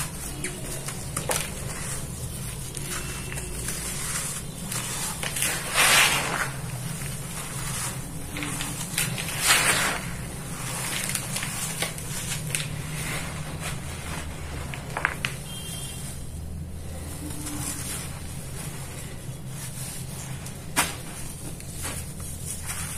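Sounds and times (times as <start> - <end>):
dry dirt sifting through hands: 0.0 - 15.0, 15.6 - 22.9.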